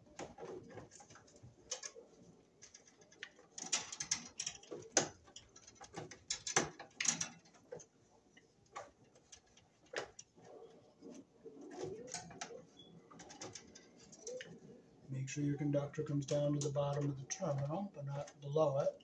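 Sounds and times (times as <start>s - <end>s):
wire and tool tapping on metal: 2.6s - 10.4s, 11.7s - 14.6s.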